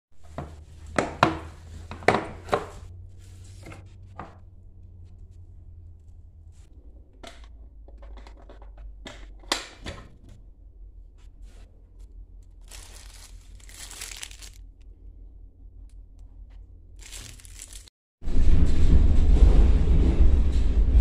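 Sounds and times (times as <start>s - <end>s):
low rumble: 2.8s - 8.1s, 10.4s - 21.0s
plastic wrappers crinkling: 12.6s - 14.8s, 17.0s - 17.9s.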